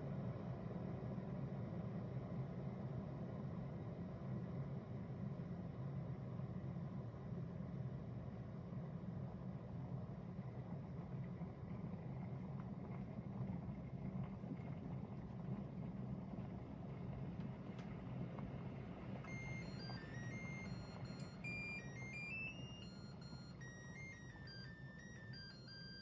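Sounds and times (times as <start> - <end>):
kettle melody of short beeps: 19.3 - 26.0.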